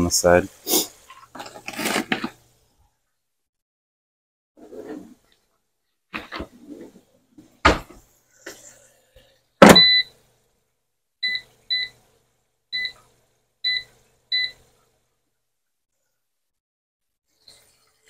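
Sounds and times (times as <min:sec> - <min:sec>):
knocks: 0:09.6 - 0:09.9
appliance keypad beeps: 0:09.6 - 0:10.1, 0:11.2 - 0:11.9, 0:12.8 - 0:13.0, 0:13.7 - 0:14.6.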